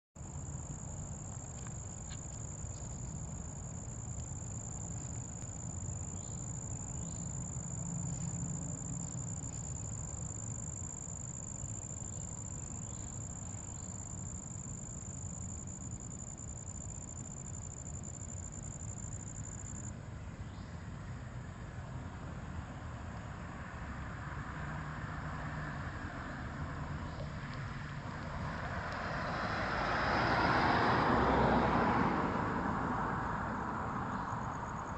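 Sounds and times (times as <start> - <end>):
insects trilling: 0.2 - 19.9.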